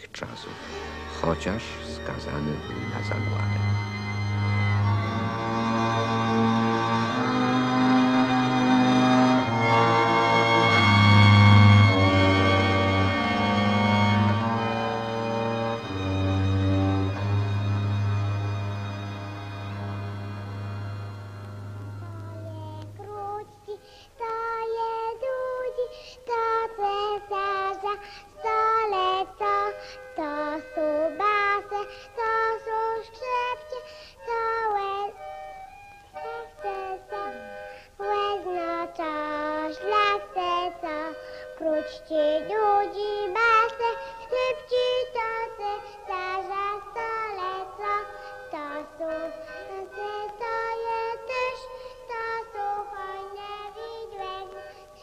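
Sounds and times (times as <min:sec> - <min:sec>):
high-pitched voice singing: 0:36.2 - 0:45.6.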